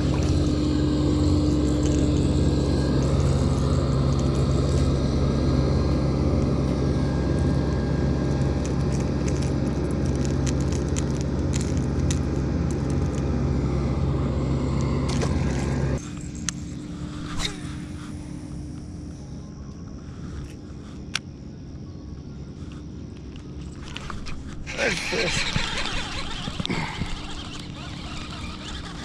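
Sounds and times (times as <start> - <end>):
machinery engine humming: 0.0 - 29.0.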